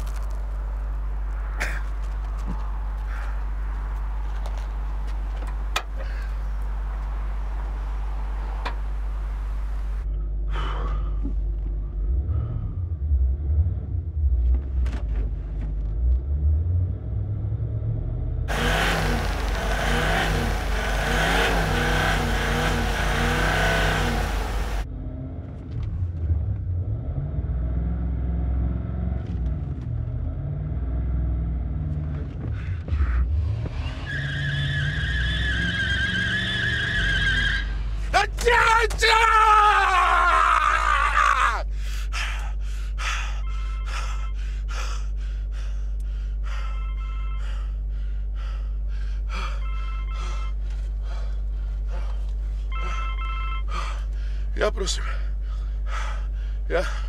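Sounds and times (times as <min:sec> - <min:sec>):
car engine idling and revving: 0:00.0 - 0:38.2, 0:42.0 - 0:57.0
heavy noise: 0:18.5 - 0:24.8.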